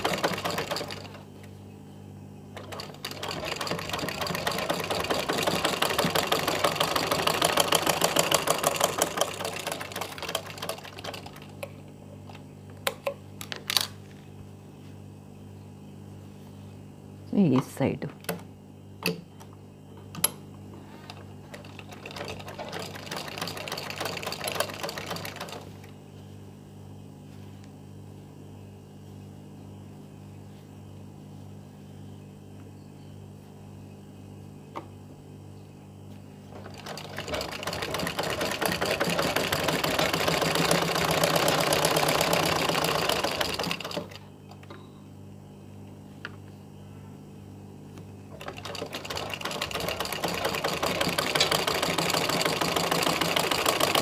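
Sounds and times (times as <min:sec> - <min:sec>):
sewing machine stitching: 0:00.0 - 0:01.2, 0:02.6 - 0:11.5, 0:36.6 - 0:44.2, 0:48.4 - 0:54.0.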